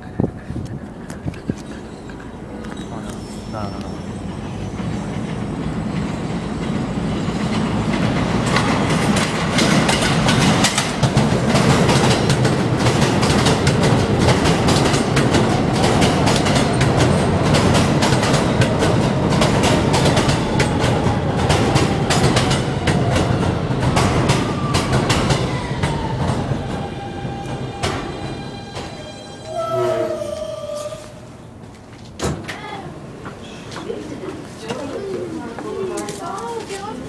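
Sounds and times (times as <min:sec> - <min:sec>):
subway train wheels clickety-clack: 0:00.0 - 0:37.0
train whine falling in pitch: 0:23.9 - 0:31.3.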